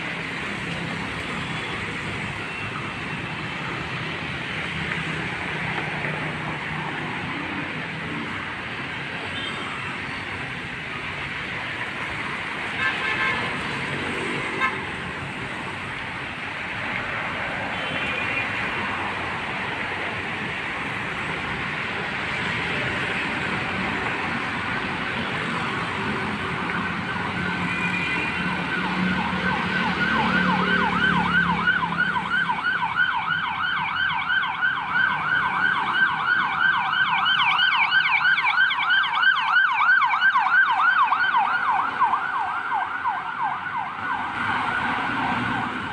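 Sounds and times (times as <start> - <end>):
road traffic passing: 0.0 - 45.9
emergency siren yelping: 24.5 - 45.9.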